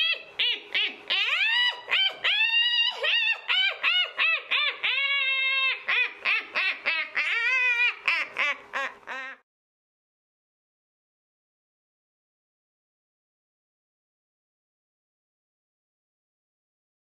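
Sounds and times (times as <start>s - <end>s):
high-pitched cackling laugh: 0.0s - 9.4s.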